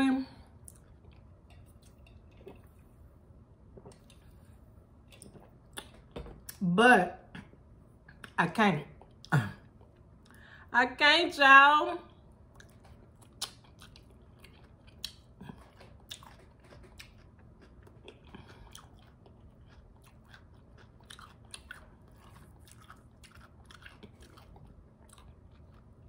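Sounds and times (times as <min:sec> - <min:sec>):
wet crunching chewing: 0:12.5 - 0:26.0.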